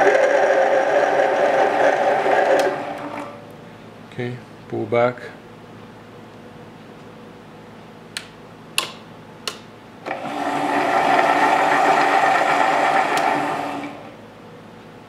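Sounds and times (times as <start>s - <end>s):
metal lathe running: 0.0s - 3.4s, 10.1s - 14.1s.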